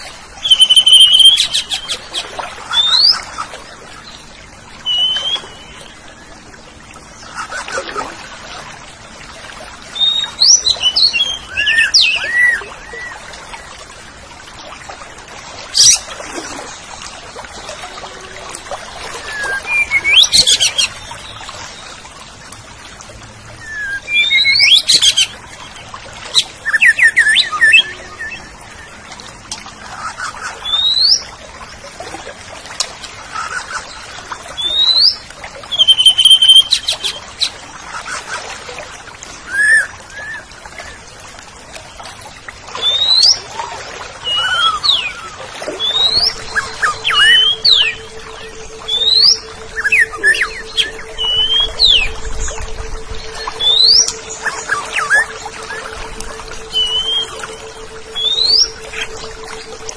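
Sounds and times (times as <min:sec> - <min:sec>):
bird singing whistles and chirps: 0:00.4 - 0:01.9, 0:04.9 - 0:05.9, 0:10.0 - 0:13.2, 0:19.2 - 0:21.0, 0:23.6 - 0:25.3, 0:26.6 - 0:28.9, 0:34.6 - 0:37.2, 0:44.2 - 0:59.9.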